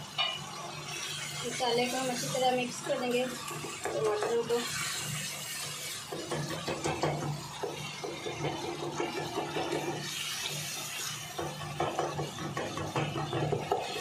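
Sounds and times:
sauce bubbling in oil: 0.0 - 14.0
wooden spoon scraping a pot: 0.9 - 14.0.

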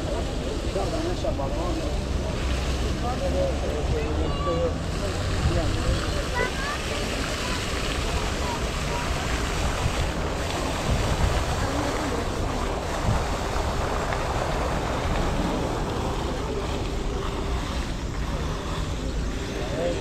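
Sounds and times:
fountains splashing: 0.0 - 20.0
wind buffeting microphone: 0.0 - 20.0.

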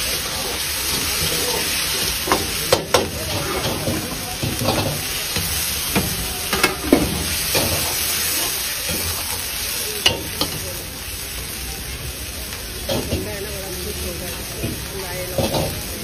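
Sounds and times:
ladle scraping wok: 0.0 - 10.7
food sizzling in a wok: 0.0 - 16.0
ladle clanking on metal: 14.7 - 15.8.

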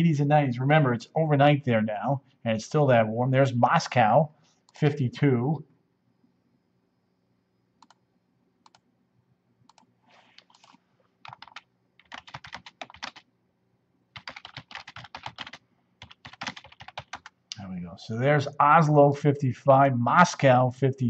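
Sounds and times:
typing on a keyboard: 9.7 - 13.2, 14.2 - 17.4.

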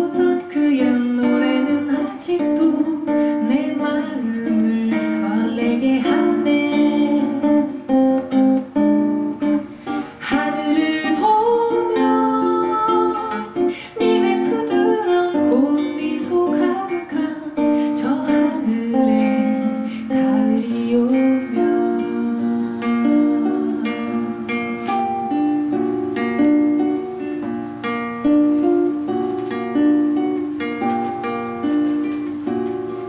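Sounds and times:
woman singing: 0.0 - 9.4, 10.0 - 25.0
nylon-string guitar: 0.0 - 33.0.

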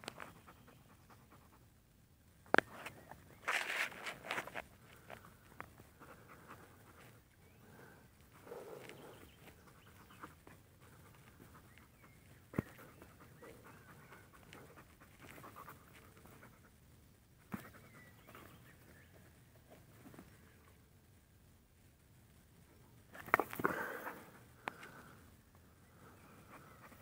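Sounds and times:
dog panting: 6.0 - 16.8.

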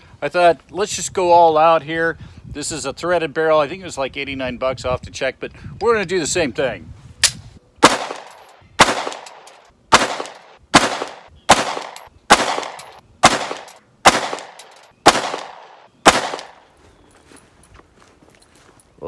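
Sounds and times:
pistol shots with echo: 7.2 - 16.6.

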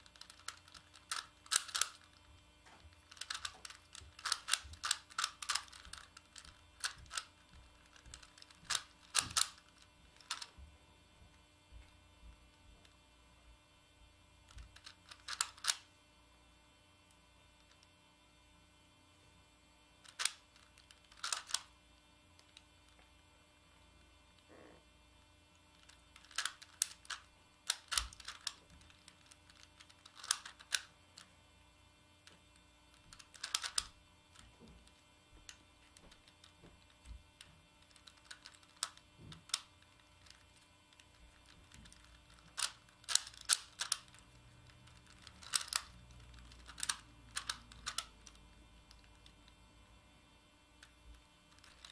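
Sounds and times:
plastic puzzle clicking: 0.0 - 2.3, 3.0 - 10.5, 14.5 - 15.8, 20.0 - 21.7, 25.7 - 31.3, 32.2 - 35.0, 37.8 - 49.3, 51.5 - 51.9
faint steady hum: 0.0 - 51.9.

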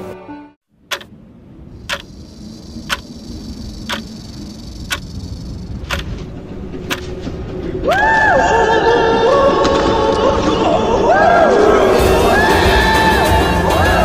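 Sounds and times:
low rumble: 0.8 - 14.0
clock ticking: 0.9 - 1.1, 1.8 - 6.1.

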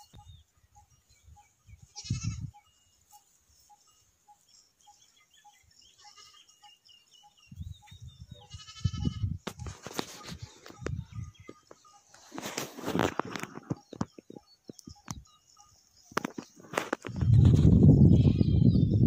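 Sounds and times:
goats bleating: 1.9 - 2.5, 6.0 - 6.5, 8.5 - 9.4.

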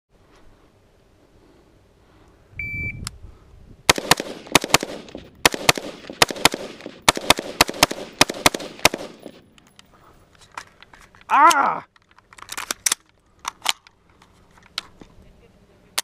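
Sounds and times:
shot timer beep: 2.6 - 3.0
rifle shots: 3.9 - 9.4.

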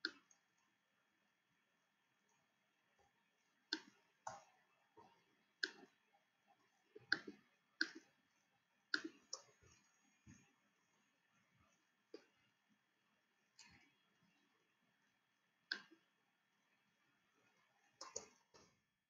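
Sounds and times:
computer mouse clicking: 15.7 - 16.0, 18.0 - 18.8.

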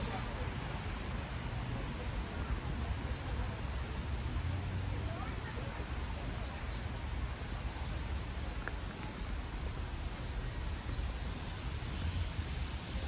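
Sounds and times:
low city rumble: 0.0 - 13.0
rain hiss: 6.8 - 13.0.

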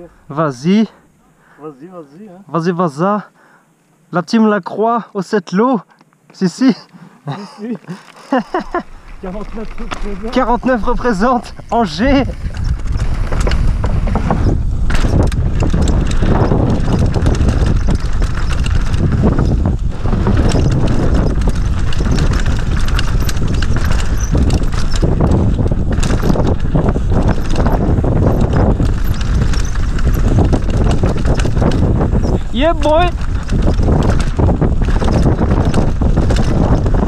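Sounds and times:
bike tyres rumbling over roots: 7.3 - 37.0
bike frame and chain rattling: 7.4 - 37.0.

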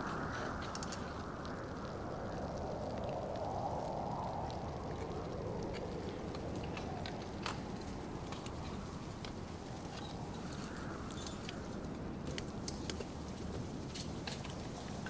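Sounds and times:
steady rushing background noise: 0.0 - 15.0
climbing tools clicking on rock: 0.3 - 1.2, 6.3 - 15.0.

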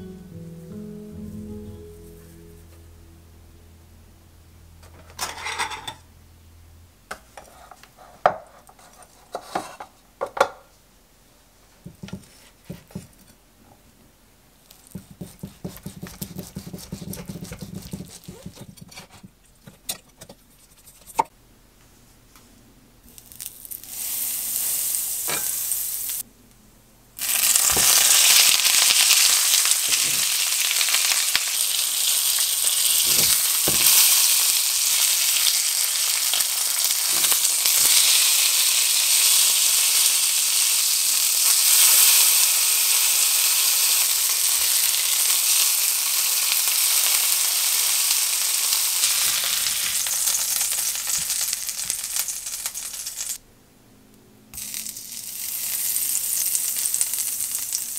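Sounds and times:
kitchen handling clicks and knocks: 9.3 - 10.7
steak sizzling in frying pan: 23.1 - 26.2, 27.2 - 53.4, 54.6 - 57.9.

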